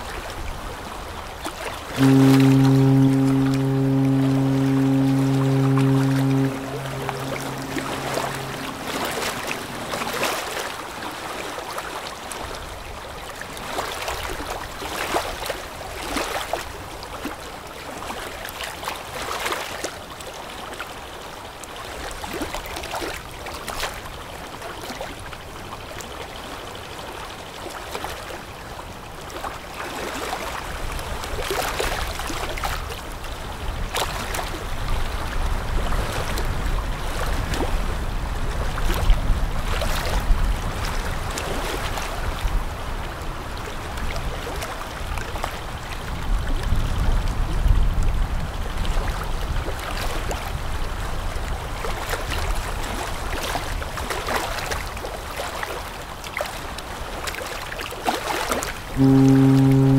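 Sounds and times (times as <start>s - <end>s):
water rushing along ship hull: 0.0s - 59.9s
low rumble: 2.2s - 10.2s.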